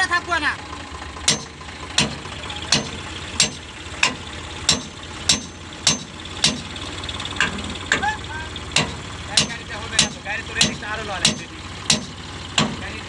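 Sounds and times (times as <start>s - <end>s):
diesel engine idling: 0.0s - 13.0s
hammer striking metal: 1.2s - 12.9s.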